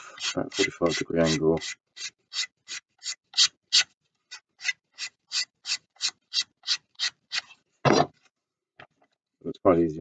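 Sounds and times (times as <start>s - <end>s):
sandpaper rasping on wood: 0.0s - 7.5s.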